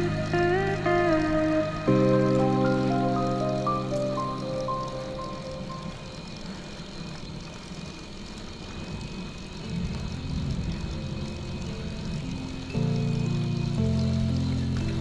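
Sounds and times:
background music: 0.0 - 6.4, 9.7 - 15.0
motorcycle engine drone: 0.0 - 15.0.

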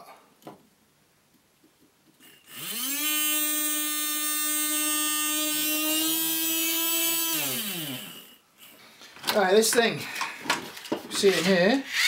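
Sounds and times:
small motor whining: 2.2 - 8.4.

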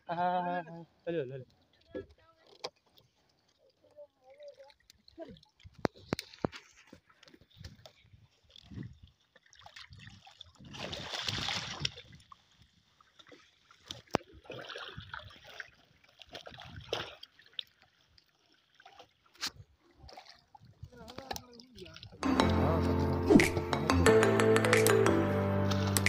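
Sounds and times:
water splashing off fishing net: 9.4 - 12.3, 13.2 - 17.9.

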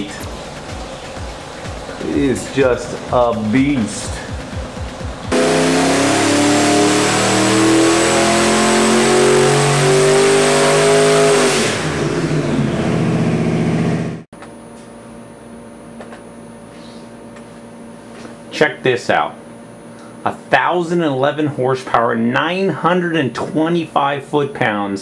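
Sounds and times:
engine revving at full throttle: 2.0 - 14.3.

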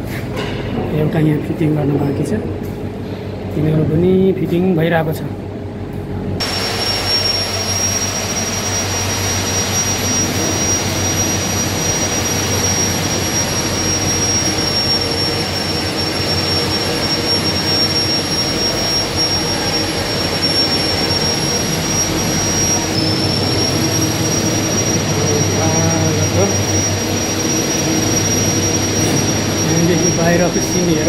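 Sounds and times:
machinery roar: 0.0 - 31.0
low hum: 5.3 - 31.0
thin high whine: 6.3 - 31.0.

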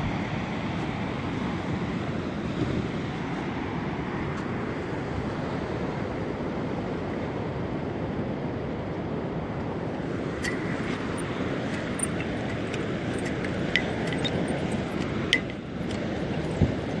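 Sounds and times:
wind over water: 0.0 - 17.0
sea rushing: 9.6 - 17.0
sharp ringing clicks: 10.4 - 17.0.

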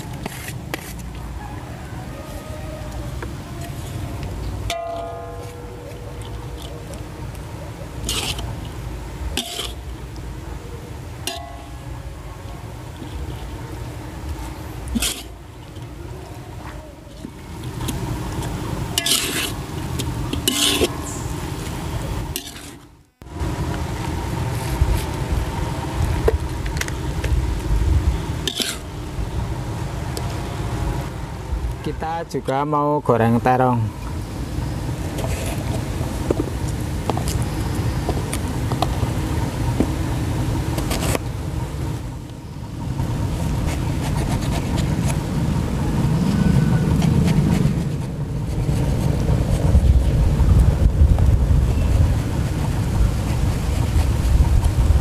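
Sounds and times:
low steady rumble: 0.0 - 55.0
metal spatula scraping a wok: 8.0 - 8.5, 9.4 - 9.9, 14.9 - 15.4, 19.0 - 19.6, 20.3 - 21.3, 22.3 - 22.9, 28.4 - 28.9
low rumble: 41.3 - 55.0.

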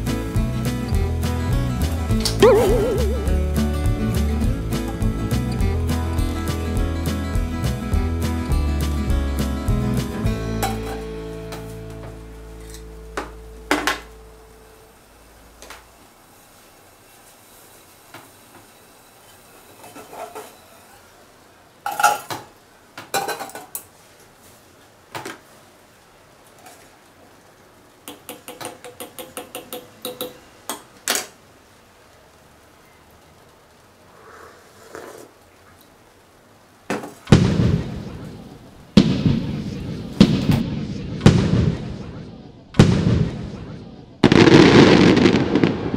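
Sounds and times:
fireworks boom: 37.2 - 45.9.

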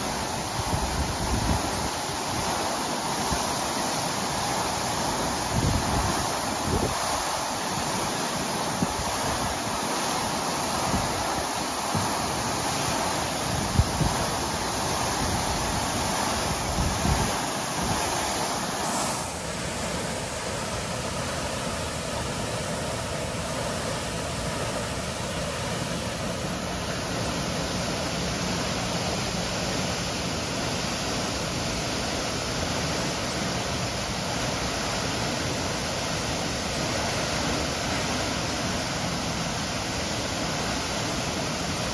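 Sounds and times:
water gushing from hydrant: 0.0 - 41.9
wind buffeting microphone: 0.1 - 2.6, 5.4 - 7.2, 10.8 - 19.1.

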